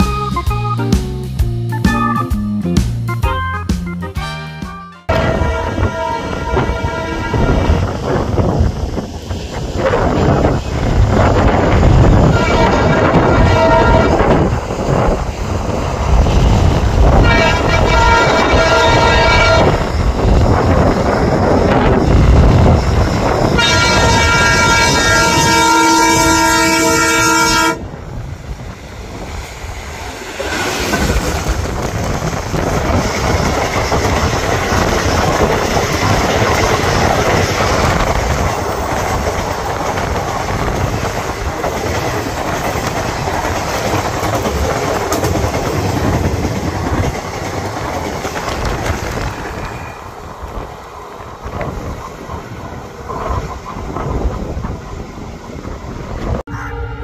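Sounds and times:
locomotive horn blast: 3.6 - 7.8, 12.2 - 14.3, 17.2 - 19.9, 23.5 - 27.8, 56.5 - 57.0
train wheels clattering over rails: 28.7 - 56.4.

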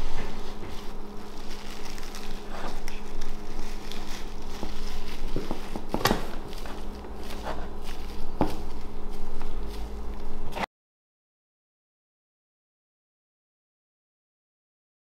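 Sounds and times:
plastic wrap crinkling: 0.0 - 10.6
low hum: 0.0 - 10.7.

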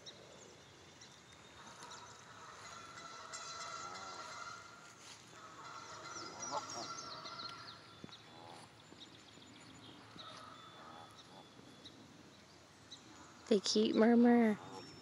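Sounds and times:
geese calling: 1.5 - 8.8, 10.0 - 12.0.

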